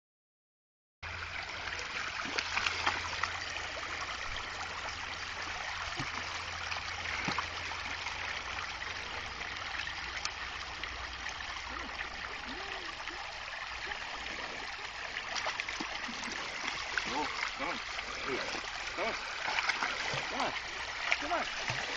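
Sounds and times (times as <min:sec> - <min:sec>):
stream running over stones: 0:01.0 - 0:21.9.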